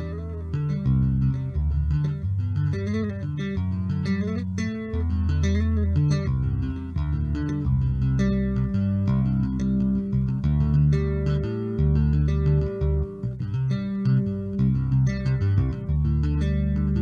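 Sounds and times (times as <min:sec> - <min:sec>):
bass guitar plucked melody: 0:00.0 - 0:17.0.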